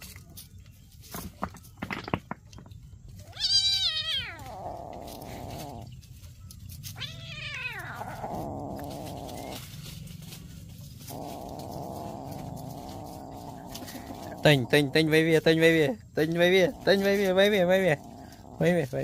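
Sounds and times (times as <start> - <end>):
cat meowing: 3.2 - 5.8, 7.0 - 9.6.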